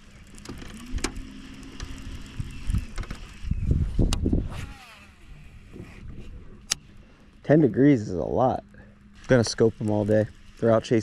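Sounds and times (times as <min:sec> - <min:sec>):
short steady hum: 0:00.0 - 0:11.0
fishing reel clicks: 0:09.0 - 0:11.0.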